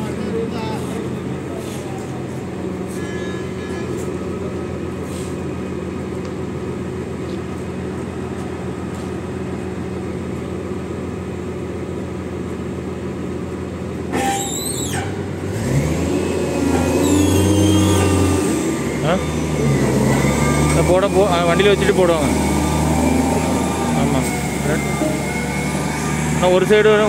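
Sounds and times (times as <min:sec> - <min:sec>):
diesel engine idling: 0:00.0 - 0:27.0
engine revving: 0:14.9 - 0:27.0.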